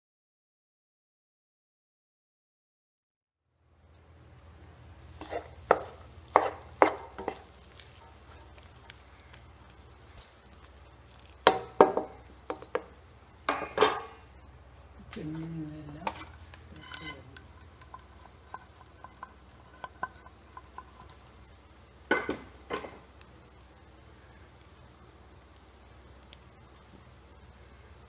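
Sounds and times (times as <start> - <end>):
spatula scraping in pan: 5.0 - 14.4, 15.3 - 21.5.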